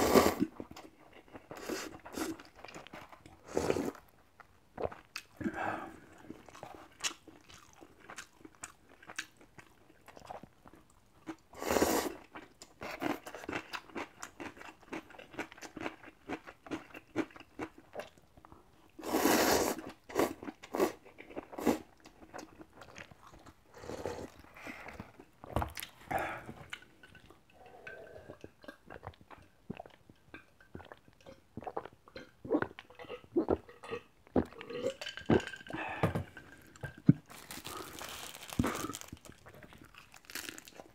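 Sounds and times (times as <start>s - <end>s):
wet chewing: 36.7s - 40.9s.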